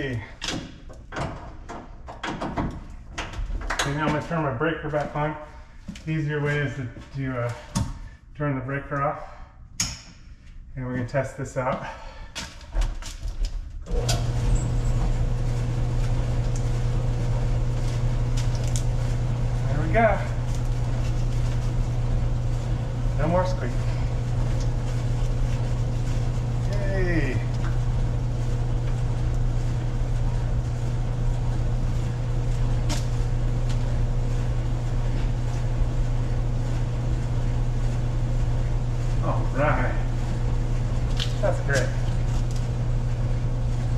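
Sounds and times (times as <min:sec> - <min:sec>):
electric dryer running: 0:13.8 - 0:43.9.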